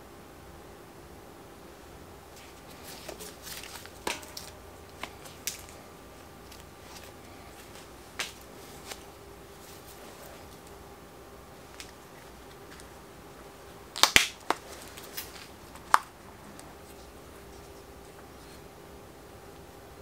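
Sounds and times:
tape crinkling rustle: 0:02.3 - 0:10.8, 0:13.9 - 0:18.6.

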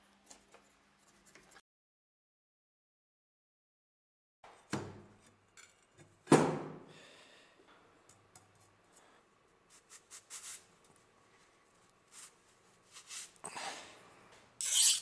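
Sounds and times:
cloth rubbing on blade: 0:14.6 - 0:15.0.

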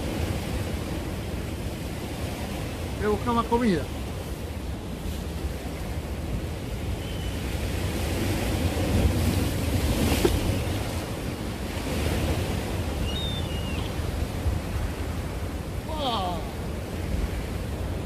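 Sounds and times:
waves breaking on concrete: 0:07.3 - 0:15.8.

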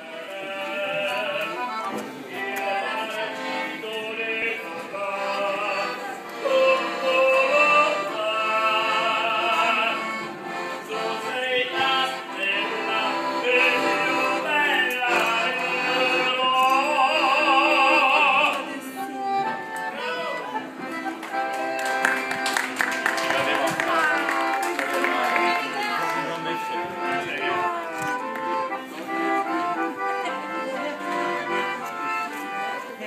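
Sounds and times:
operatic singing with vibrato: 0:00.0 - 0:10.2, 0:10.8 - 0:18.8
accordion chords: 0:00.0 - 0:33.0.

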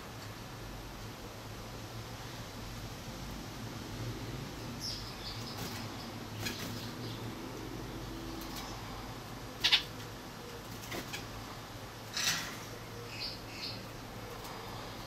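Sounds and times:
finches chirping: 0:04.7 - 0:07.4, 0:09.6 - 0:11.3, 0:12.6 - 0:14.8.

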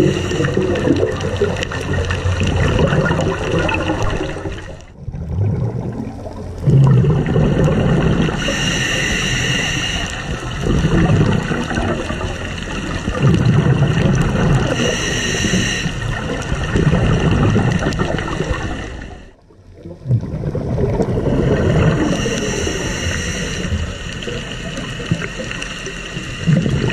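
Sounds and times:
regulator hiss on inhale: 0:00.0 - 0:00.8, 0:08.3 - 0:10.6, 0:14.7 - 0:16.2, 0:18.1 - 0:19.4, 0:21.9 - 0:26.9
gurgling exhaust bubbles: 0:00.0 - 0:09.2, 0:10.2 - 0:26.9.

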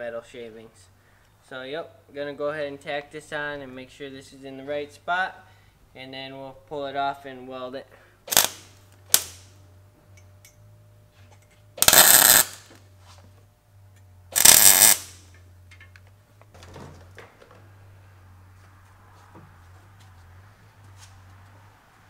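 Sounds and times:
low steady hum: 0:00.0 - 0:22.0
arc welder crackling: 0:08.3 - 0:10.6, 0:11.7 - 0:12.9, 0:14.3 - 0:16.6.

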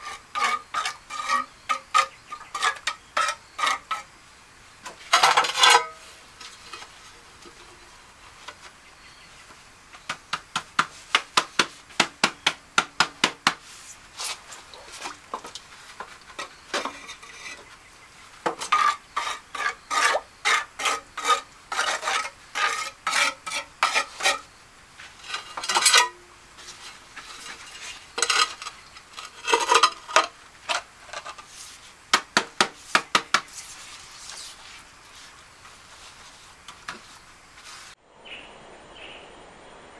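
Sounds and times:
trowel scraping through mortar: 0:00.0 - 0:04.1, 0:18.5 - 0:24.5, 0:25.2 - 0:31.9.

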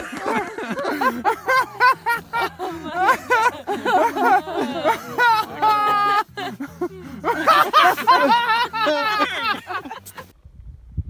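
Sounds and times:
people laughing: 0:00.0 - 0:10.3
people talking excitedly: 0:02.4 - 0:08.1.

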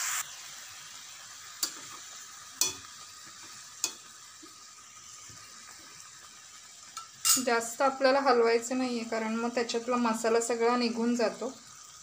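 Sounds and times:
food sizzling in a pan: 0:00.0 - 0:12.0
metal spoon knocking a pan: 0:02.6 - 0:02.9.

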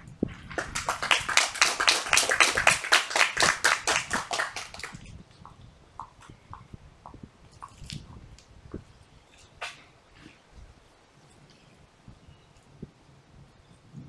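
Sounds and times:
small group applauding: 0:00.4 - 0:05.1.

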